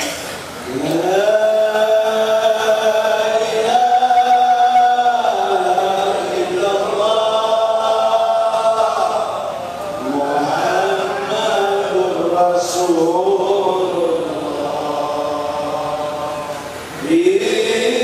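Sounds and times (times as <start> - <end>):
man chanting: 10.0 - 18.0.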